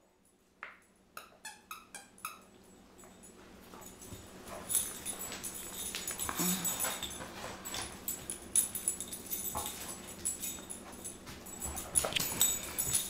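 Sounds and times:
dog claws scuffling on hard floor: 3.1 - 13.0.

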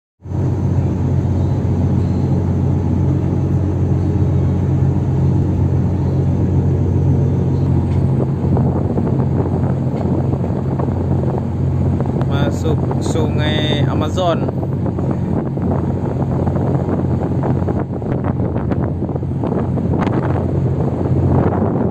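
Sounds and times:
ship diesel engines droning: 0.2 - 21.9.

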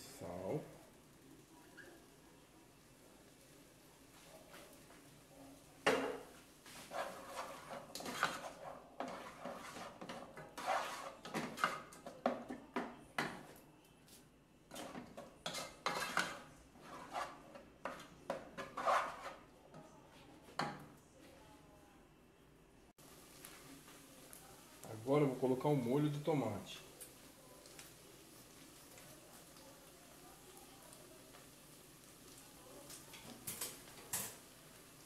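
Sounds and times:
wooden spoon scraping a pot: 6.2 - 12.6, 14.7 - 19.5.

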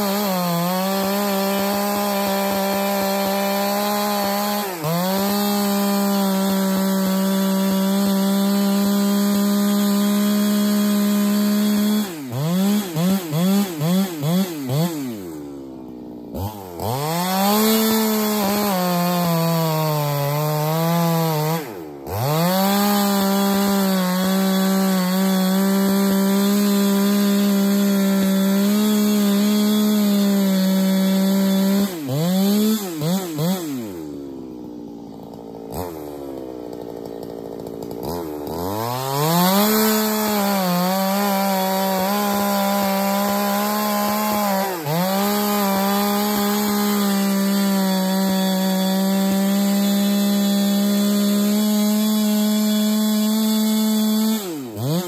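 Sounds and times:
chainsaw cutting log: 0.0 - 55.0.

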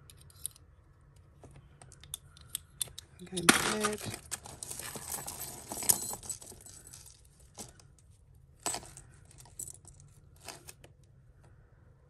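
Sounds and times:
jewellery clinking and jangling: 3.2 - 8.0, 8.6 - 10.7.

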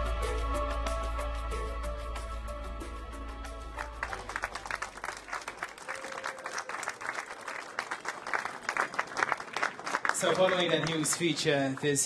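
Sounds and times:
background music: 0.0 - 5.8
audience applauding: 3.8 - 12.0.

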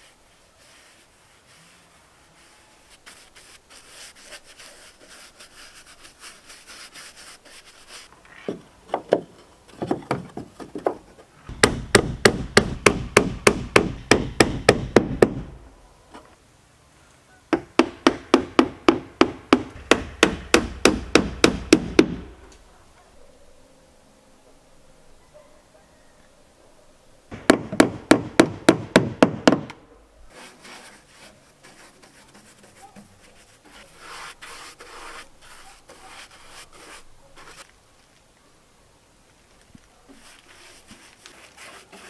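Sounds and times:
faint rubbing of wood: 0.0 - 11.6, 30.3 - 38.5, 39.2 - 42.0
hammer driving nails into wood: 9.8 - 15.5, 17.6 - 22.3, 27.3 - 29.8.

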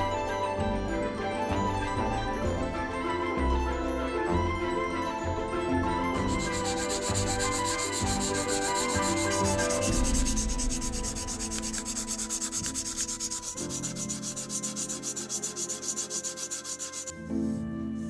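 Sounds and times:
abrasive pad scrubbing steel blade: 6.2 - 17.1.

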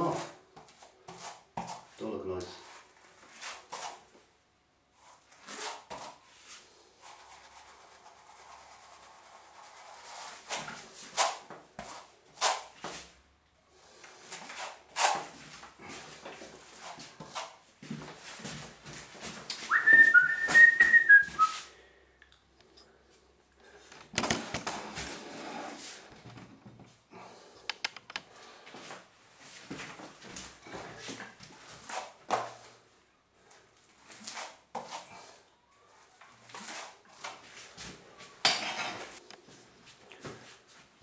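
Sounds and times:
short high whistle: 19.7 - 21.7.

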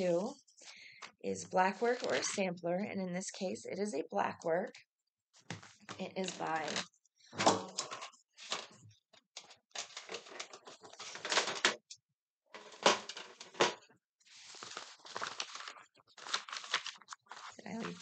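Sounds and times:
paper rustling: 9.4 - 11.8, 12.6 - 18.0.

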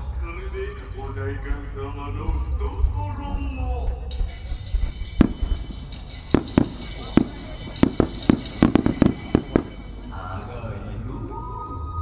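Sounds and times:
firework shells bursting: 4.2 - 10.2.

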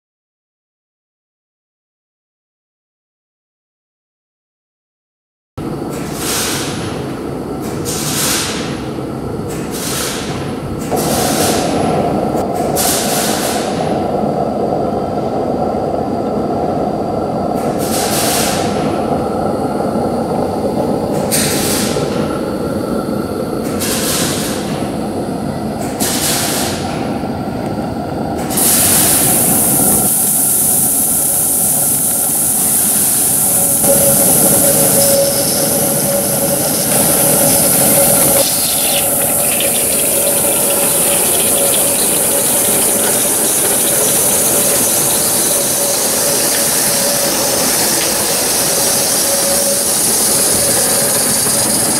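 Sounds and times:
loud steady steam hiss: 6.1 - 14.4, 17.2 - 27.3, 28.4 - 51.9
short steam hissing bursts: 28.6 - 51.9.

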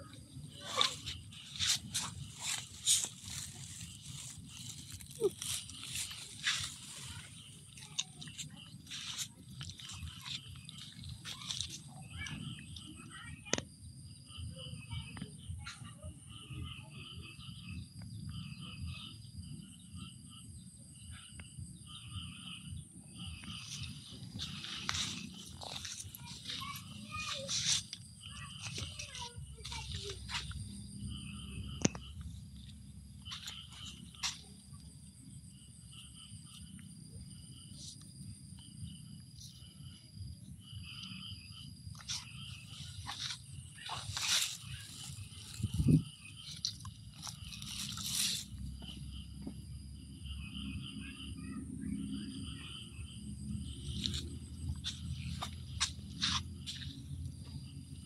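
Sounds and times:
high insect drone: 0.0 - 58.0.

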